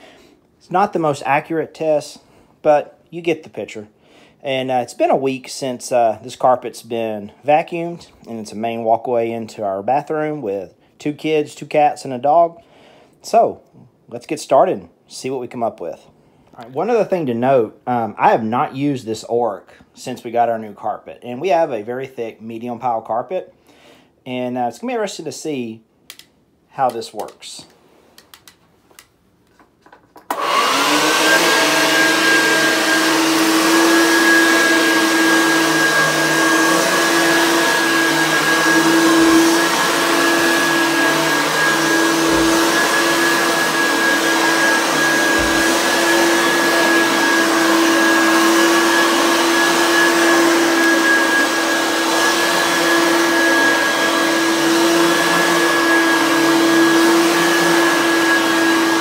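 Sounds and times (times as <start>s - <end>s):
vacuum cleaner motor running: 30.3s - 59.0s
vacuum cleaner pushed over carpet: 30.3s - 59.0s.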